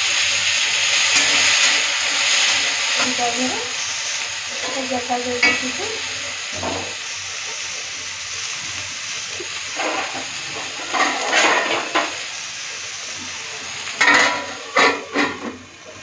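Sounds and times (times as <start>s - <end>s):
vegetables sizzling in hot oil: 0.0s - 16.0s
metal spatula clanking on pan: 5.4s - 5.7s, 14.0s - 15.6s.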